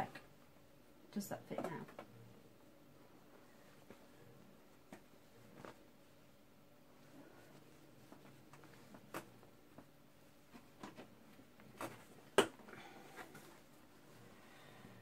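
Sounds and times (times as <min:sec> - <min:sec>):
fabric rustling: 0:03.2 - 0:12.3.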